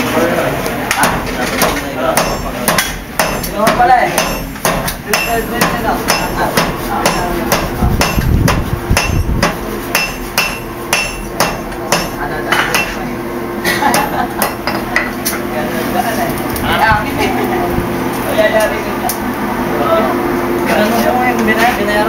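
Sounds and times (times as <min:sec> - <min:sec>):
hammers ringing on anvil: 0:01.0 - 0:13.0, 0:13.9 - 0:15.1.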